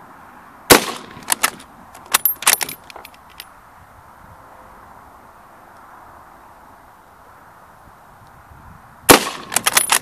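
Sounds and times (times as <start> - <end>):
rifle shot crack: 0.7 - 1.6, 9.1 - 10.0
rifle bolt metallic clicks: 1.0 - 3.5, 9.3 - 10.0.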